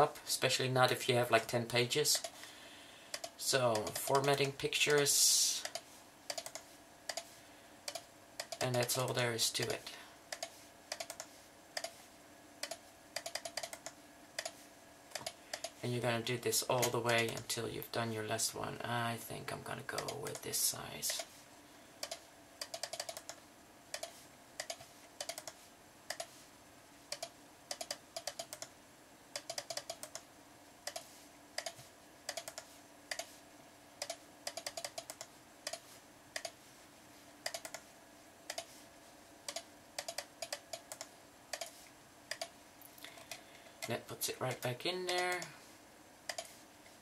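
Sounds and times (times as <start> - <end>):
faint steady hum: 0.0 - 47.0
mouse and keyboard clicks: 3.1 - 7.3, 7.9 - 8.9, 10.3 - 12.0, 12.6 - 15.8, 22.0 - 26.3, 27.1 - 28.7, 29.4 - 30.2, 30.8 - 33.3, 34.0 - 35.8, 36.4 - 36.6, 37.4 - 37.8, 38.5 - 38.7, 39.5 - 42.5, 46.3 - 46.6.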